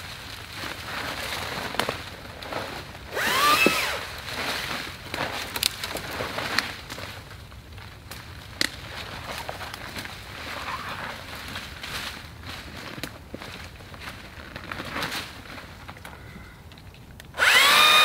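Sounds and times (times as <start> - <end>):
footsteps through dry brush: 0.0 - 16.4.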